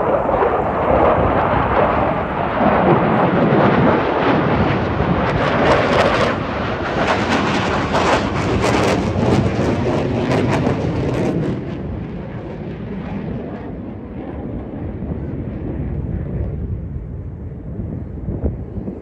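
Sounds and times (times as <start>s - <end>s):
aircraft low pass roar: 0.0s - 19.0s.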